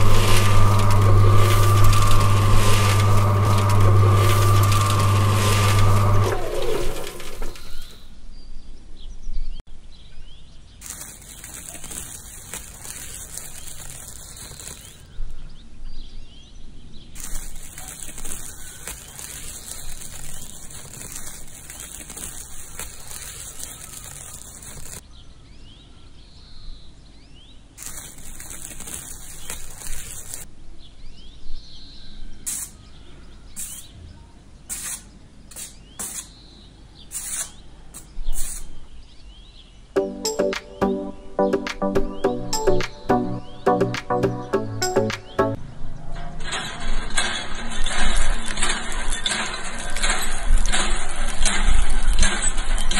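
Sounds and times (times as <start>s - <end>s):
high steady hiss: 0.0s - 8.0s, 10.8s - 15.1s, 17.2s - 25.0s, 27.8s - 30.5s
birds chirping: 0.0s - 45.6s
short sharp scrapes: 32.5s - 32.9s, 33.5s - 33.9s, 34.7s - 38.8s.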